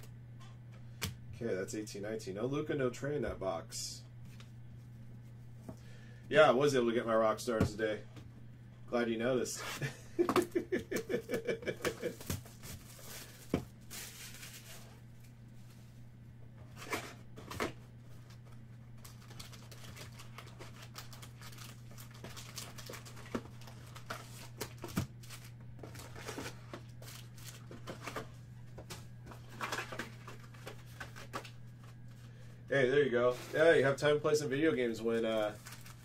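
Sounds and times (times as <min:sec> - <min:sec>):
steady low hum: 0:00.0 - 0:36.0
foil packs crinkling: 0:11.9 - 0:15.3, 0:18.1 - 0:28.3, 0:33.2 - 0:36.0.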